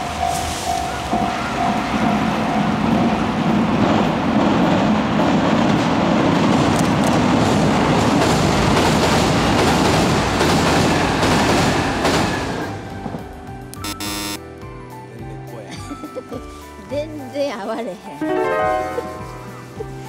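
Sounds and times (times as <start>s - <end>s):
wheels clacking over rail joints: 0.0s - 13.6s
train rumbling over bridge: 0.0s - 13.8s.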